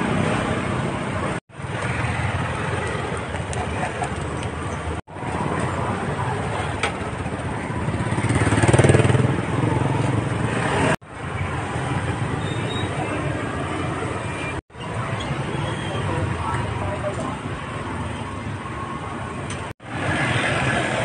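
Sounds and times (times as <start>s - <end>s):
busy street traffic: 0.0s - 21.0s
vehicle passing close by: 7.8s - 11.0s.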